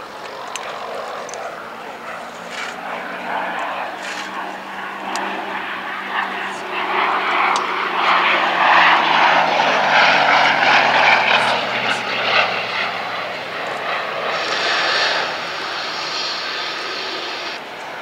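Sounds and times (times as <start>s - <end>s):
radial aircraft engine flypast: 0.0s - 18.0s
steady high hiss: 14.2s - 17.6s.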